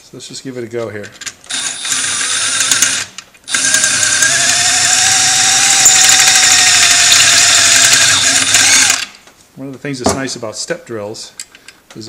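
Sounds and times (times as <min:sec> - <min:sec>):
electric drill whining: 0:01.5 - 0:09.2.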